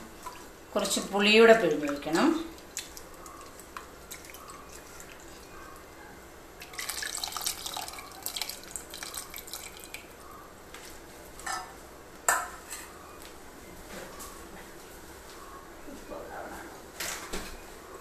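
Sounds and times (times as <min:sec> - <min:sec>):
juice dripping and splashing: 0:01.8 - 0:05.9, 0:06.6 - 0:10.2.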